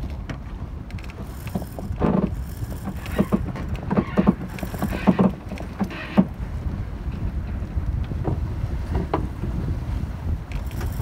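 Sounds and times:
water slapping against hull: 0.0s - 11.0s
wind rumbling on microphone: 0.0s - 11.0s.

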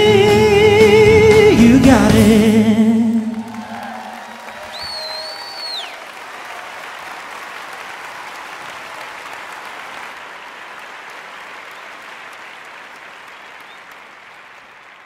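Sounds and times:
audience applauding: 3.1s - 15.0s.

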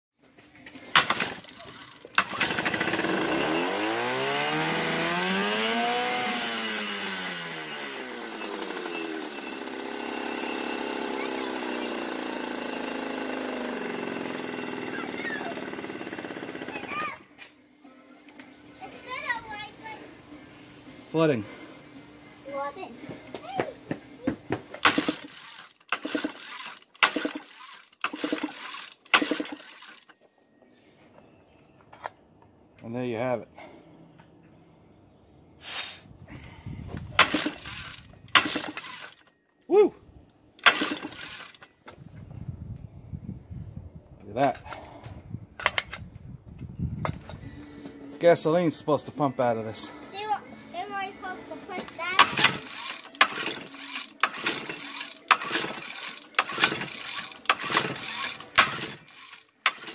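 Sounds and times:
recoil starter pulled: 0.8s - 4.0s, 24.8s - 30.1s, 37.1s - 39.3s, 40.6s - 41.7s, 52.2s - 59.9s
sharp cracks: 0.9s - 3.1s, 24.8s - 30.0s, 37.2s - 39.2s, 40.6s - 41.7s, 52.2s - 59.9s
outboard engine being cranked: 0.9s - 3.8s, 24.8s - 30.1s, 37.2s - 39.3s, 40.6s - 41.7s, 52.2s - 59.9s
outboard engine revving: 2.4s - 9.2s.

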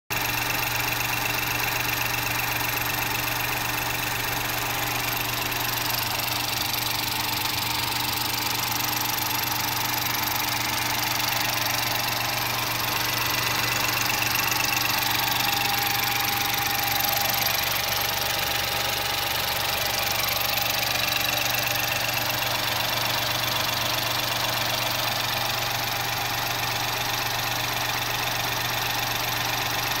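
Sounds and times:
car engine idling: 0.1s - 30.0s.

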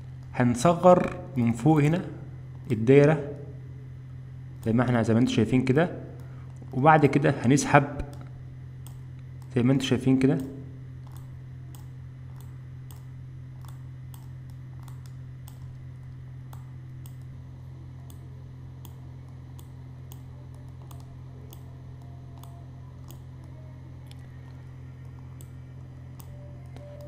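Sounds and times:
steady low hum: 0.0s - 27.0s
computer mouse clicking: 8.0s - 9.6s, 10.4s - 17.4s, 18.0s - 27.0s.

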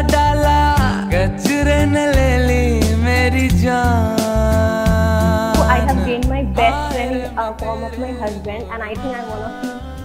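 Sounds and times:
repeating bass line: 3.6s - 9.5s
gliding lead melody: 5.2s - 9.9s.

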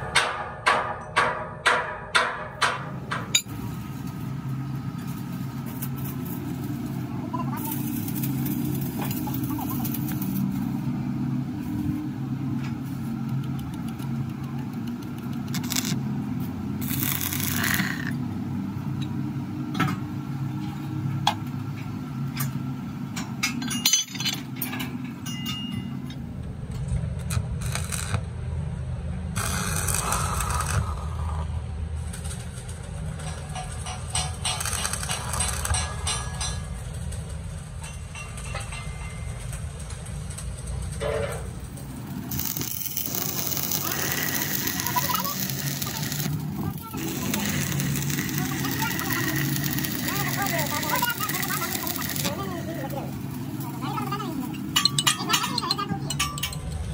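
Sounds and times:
metal clinks and scrapes: 23.2s - 26.2s, 32.8s - 37.0s, 37.8s - 40.4s, 41.0s - 52.6s, 54.4s - 56.9s.

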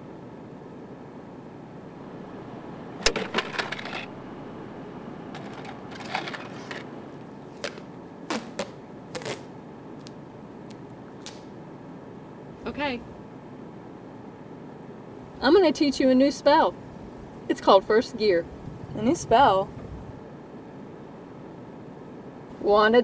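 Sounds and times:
steady low hum: 0.0s - 23.0s.

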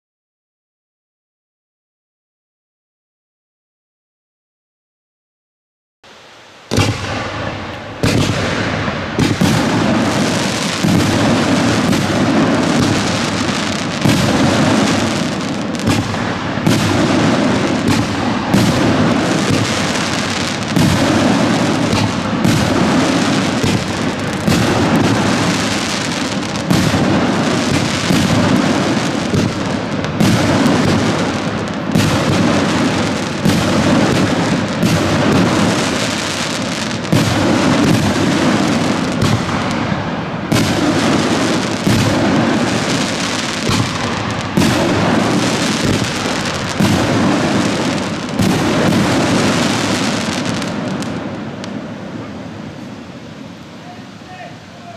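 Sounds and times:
dense firework crackling: 6.1s - 54.9s
firework launch thumps: 6.7s - 9.7s, 15.8s - 19.7s.

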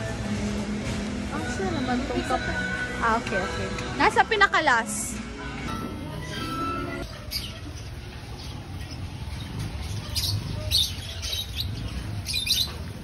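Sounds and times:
birds chirping: 5.7s - 13.0s.

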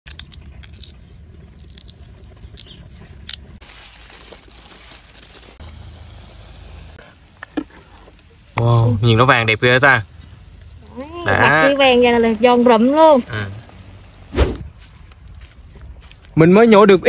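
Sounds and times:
gloved hands rustling: 0.1s - 8.3s.

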